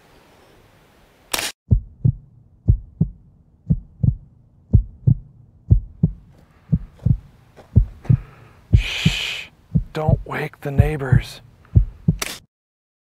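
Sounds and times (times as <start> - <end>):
heartbeat thumps: 1.7 - 12.3
faint hiss: 8.3 - 11.8.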